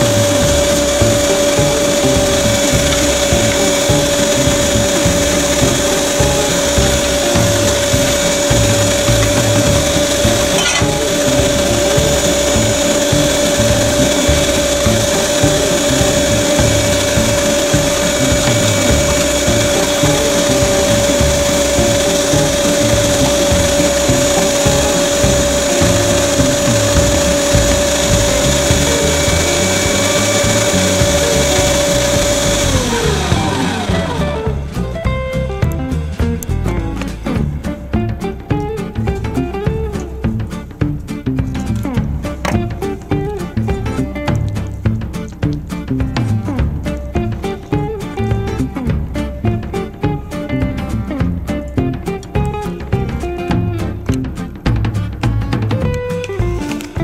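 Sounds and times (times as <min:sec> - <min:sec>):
meat grinder motor whining: 0:00.0 - 0:34.8.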